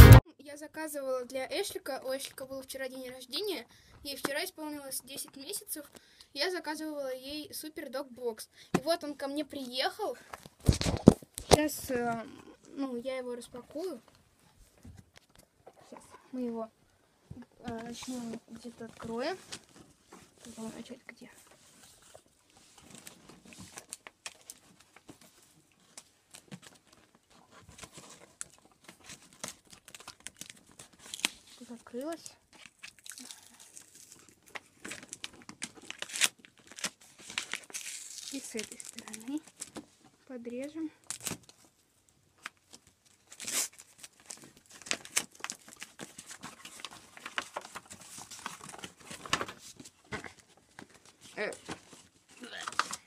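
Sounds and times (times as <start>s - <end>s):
paper tearing and crumpling: 10.6s - 11.6s, 25.9s - 32.0s, 32.6s - 39.8s, 43.2s - 49.9s, 50.8s - 53.0s.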